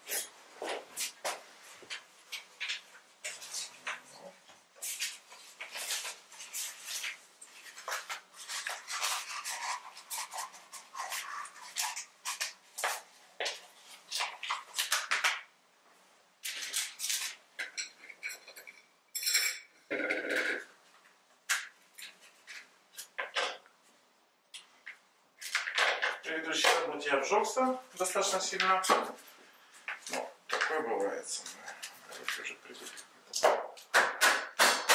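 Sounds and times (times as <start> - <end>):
metal tools and dishes clinking: 17.6 - 19.9.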